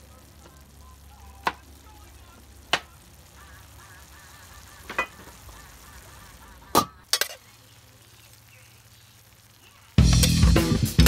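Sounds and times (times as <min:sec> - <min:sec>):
faint steady background noise: 0:00.0 - 0:11.0.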